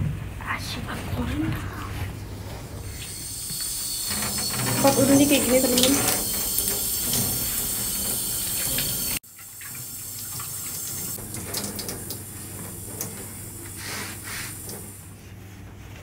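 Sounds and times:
tap water running into metal trough: 0:02.8 - 0:15.1
small knocks and splashes: 0:04.1 - 0:14.9.

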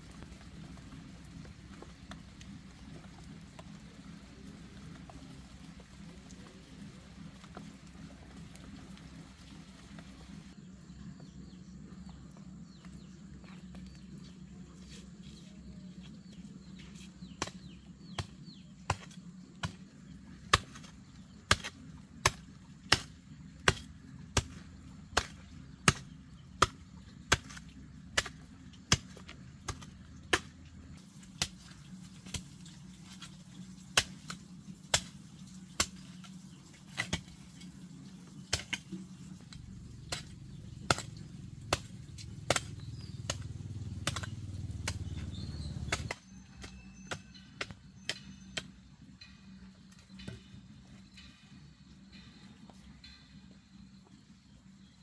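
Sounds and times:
steady low hum: 0:00.0 - 0:46.3
hoe chopping soil: 0:16.2 - 0:48.8.

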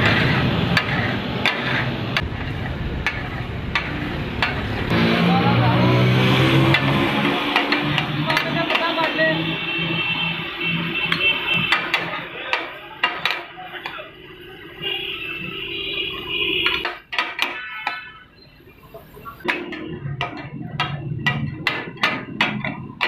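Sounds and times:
metal spatulas striking a griddle: 0:00.0 - 0:04.7, 0:06.7 - 0:09.3, 0:11.1 - 0:14.0, 0:16.6 - 0:18.1, 0:19.4 - 0:23.0.

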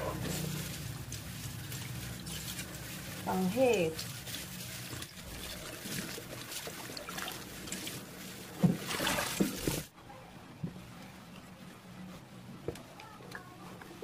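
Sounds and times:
water splashing and sloshing: 0:00.0 - 0:09.9.

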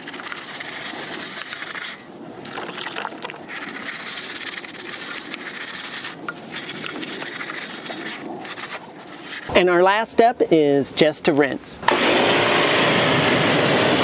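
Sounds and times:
brush scrubbing rubber tire: 0:00.0 - 0:09.5.

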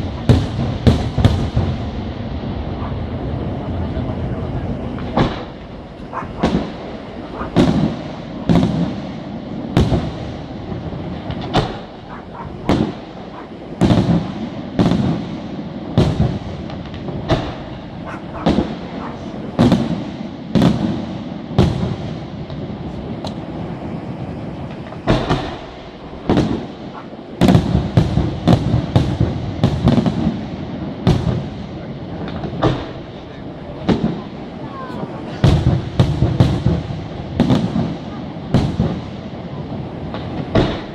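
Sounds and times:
firework shells bursting: 0:05.0 - 0:23.5.

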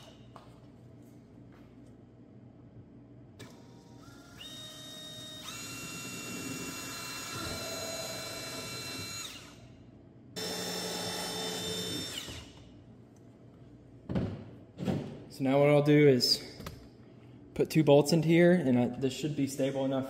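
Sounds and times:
power drill boring plastic: 0:03.4 - 0:09.6, 0:10.4 - 0:12.6.

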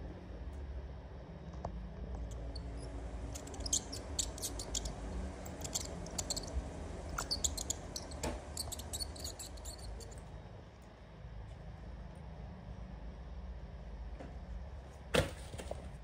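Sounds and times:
steady low hum: 0:00.0 - 0:15.1
mice squeaking: 0:02.2 - 0:10.3.

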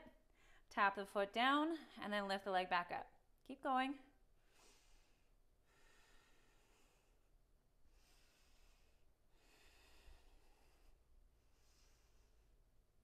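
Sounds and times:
woman breathing softly: 0:00.2 - 0:00.7, 0:04.4 - 0:12.8.

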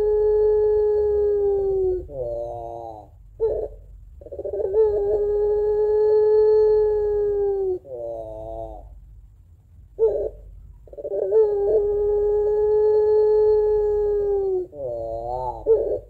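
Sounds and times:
dove cooing long calls: 0:00.0 - 0:09.1, 0:09.9 - 0:16.0.

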